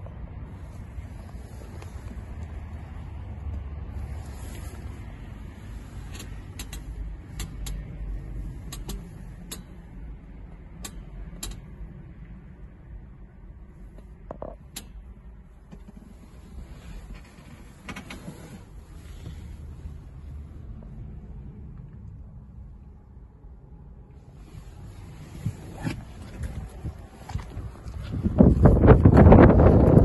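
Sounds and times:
low rumble inside van: 0.0s - 30.0s
sharp clicks and knocks: 6.1s - 7.9s, 8.6s - 9.8s, 10.8s - 11.7s.

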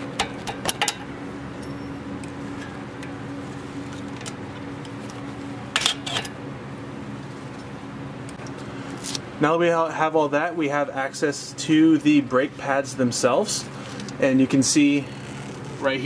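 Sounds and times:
background hum: 0.0s - 16.0s.

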